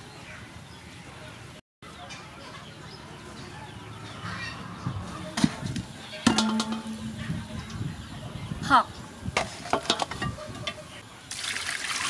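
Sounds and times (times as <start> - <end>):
ringing metallic clank: 6.2 - 7.8.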